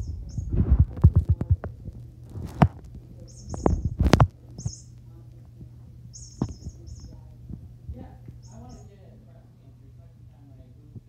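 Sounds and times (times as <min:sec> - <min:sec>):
cat chirping: 0:00.0 - 0:00.6, 0:03.2 - 0:05.0, 0:06.1 - 0:07.3, 0:08.3 - 0:08.9
steady low hum: 0:00.0 - 0:11.0.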